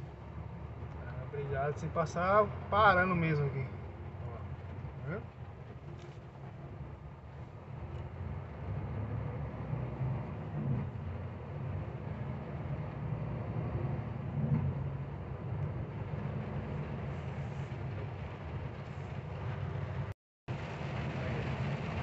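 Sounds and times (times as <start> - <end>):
rain: 0.0 - 22.0
tyres hissing on wet road: 16.0 - 22.0.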